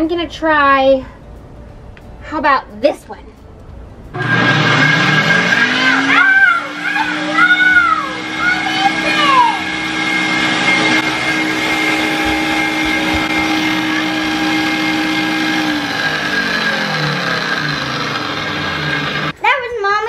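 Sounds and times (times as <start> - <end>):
blender motor running: 4.2 - 19.4
blender spinning down: 4.2 - 19.4.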